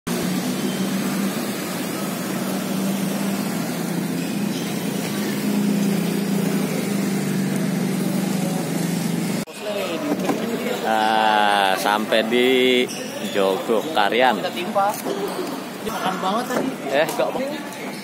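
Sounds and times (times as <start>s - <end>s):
engine droning steadily: 0.1s - 9.5s.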